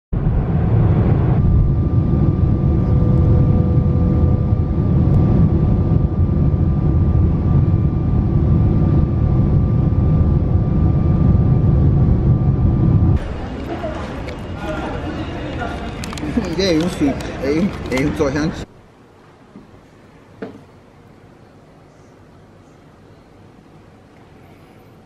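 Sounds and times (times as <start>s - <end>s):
jet engine rumble and rushing air: 0.1s - 18.7s
faint steady whine: 0.2s - 25.0s.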